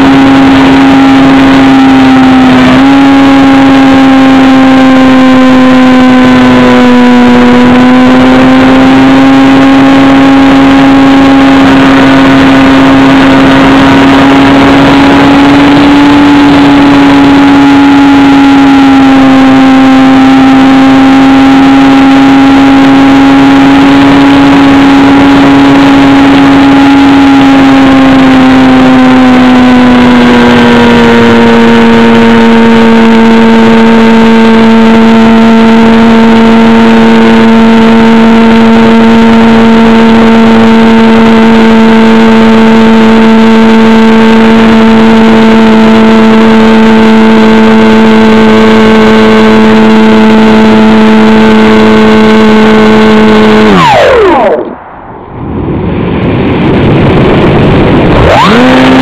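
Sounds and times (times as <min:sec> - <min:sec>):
electric motor and propeller hum: 0:00.0 - 0:59.0
air rushing past microphone: 0:54.6 - 0:58.3.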